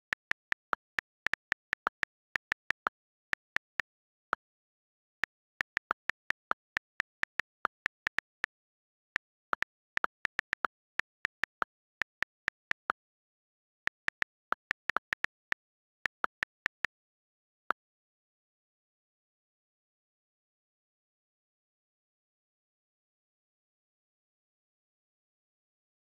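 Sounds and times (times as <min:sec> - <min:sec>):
on-screen keyboard key clicks: 0:00.0 - 0:04.2, 0:05.2 - 0:13.0, 0:13.9 - 0:16.9.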